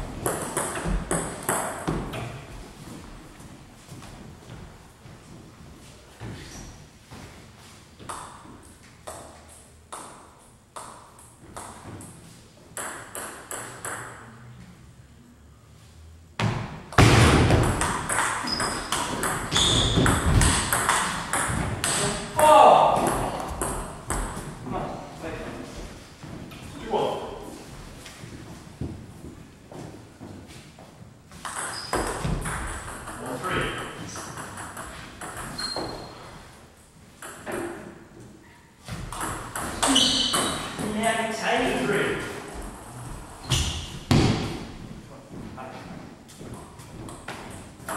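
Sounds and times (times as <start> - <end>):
table tennis rally: 0.0 - 2.4, 8.0 - 14.4, 16.5 - 27.5, 31.3 - 36.5, 37.1 - 44.7.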